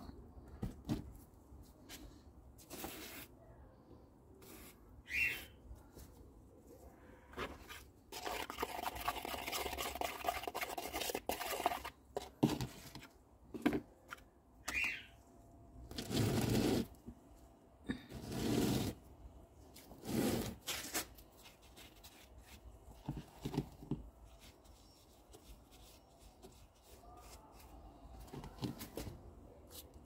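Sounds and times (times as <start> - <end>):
palette knife stirring cement paste: 7.3 - 13.0
paste scraped onto concrete: 8.1 - 12.0, 19.9 - 21.1.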